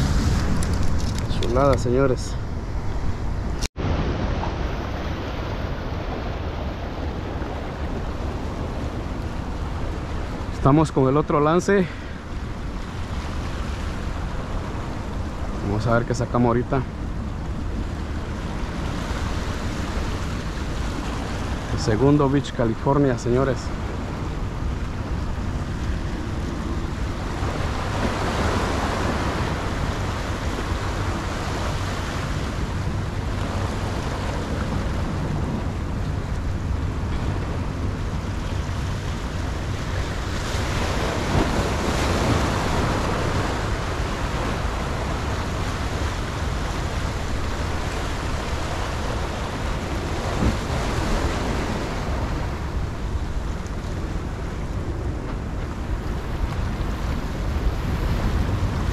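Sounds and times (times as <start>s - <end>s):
ocean waves washing over rocks: 0.0s - 58.9s
wind rumble on microphone: 0.0s - 58.9s.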